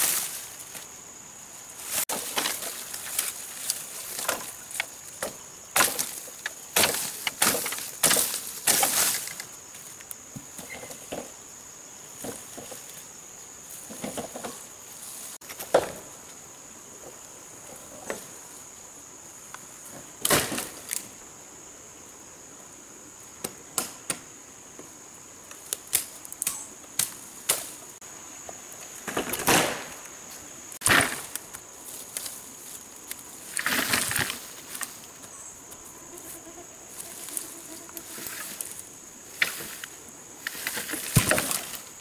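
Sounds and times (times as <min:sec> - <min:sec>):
bamboo rustling through undergrowth: 0:00.0 - 0:11.4, 0:12.0 - 0:18.8, 0:25.4 - 0:42.0
high-pitched insect buzz: 0:33.4 - 0:42.0.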